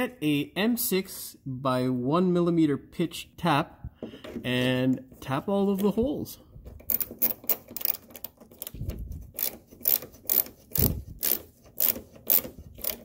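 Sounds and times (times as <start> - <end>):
ratcheting tap handle clicking: 6.8 - 13.0.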